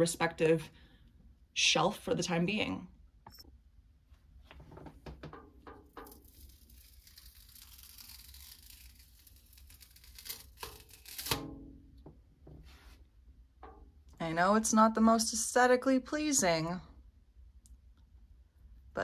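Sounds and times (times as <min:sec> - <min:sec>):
sticky trap peeling off glass: 0:05.8 - 0:11.6.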